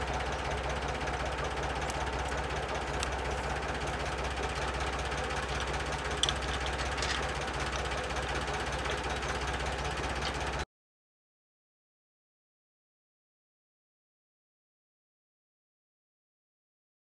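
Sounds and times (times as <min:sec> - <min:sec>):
tractor engine idling: 0:00.0 - 0:10.7
metal bolts clinking: 0:01.6 - 0:04.0, 0:05.4 - 0:07.9.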